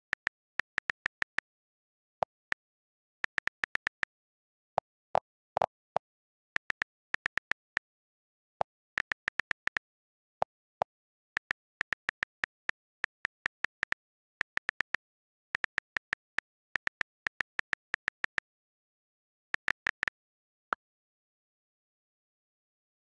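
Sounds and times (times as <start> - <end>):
on-screen keyboard clicks: 0.1 - 1.6, 2.2 - 4.2, 6.6 - 8.0, 8.6 - 18.5.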